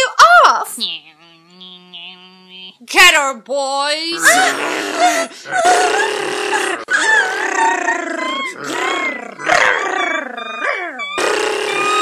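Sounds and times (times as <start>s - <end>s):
dogs growling and snarling: 4.2s - 12.0s.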